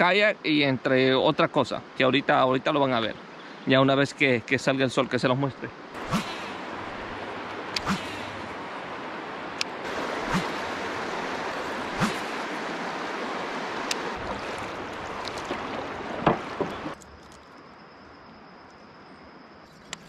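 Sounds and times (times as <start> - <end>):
river water rushing: 6.0 - 17.0.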